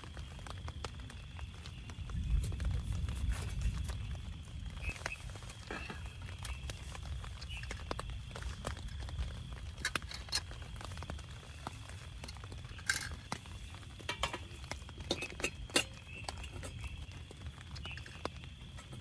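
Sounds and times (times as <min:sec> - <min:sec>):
rain on tent: 0:00.0 - 0:19.0.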